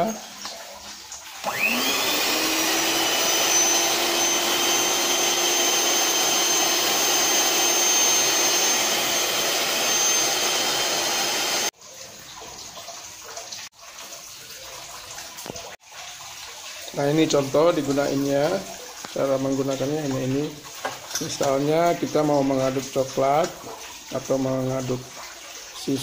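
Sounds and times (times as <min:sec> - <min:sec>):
hand mixer motor whining: 0:01.4 - 0:11.7.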